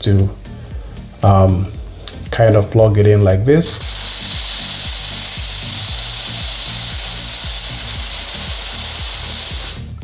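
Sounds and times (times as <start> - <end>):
gas hissing from refill can: 3.6 - 10.0.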